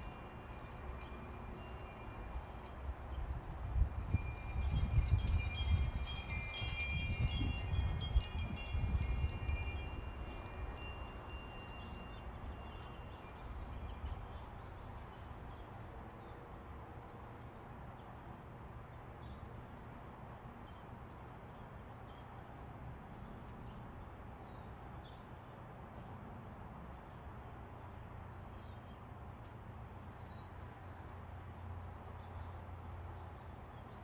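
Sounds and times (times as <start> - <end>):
metal wind chimes tinkling: 0.0 - 15.3
low wind rumble: 0.0 - 18.8.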